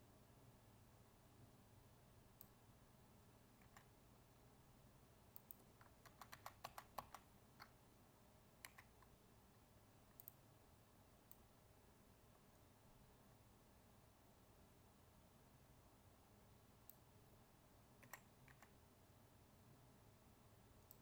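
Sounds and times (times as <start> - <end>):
faint keyboard clicks: 3.6 - 4.0, 5.3 - 7.8, 8.6 - 9.2, 10.1 - 10.4, 18.0 - 18.8.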